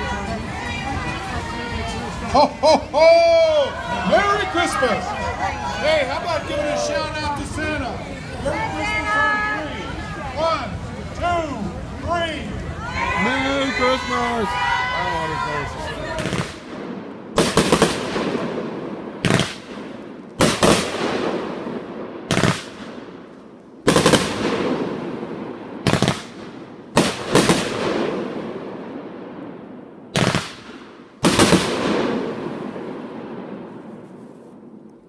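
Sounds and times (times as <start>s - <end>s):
firework bangs with echoing rumble: 16.1s - 34.8s.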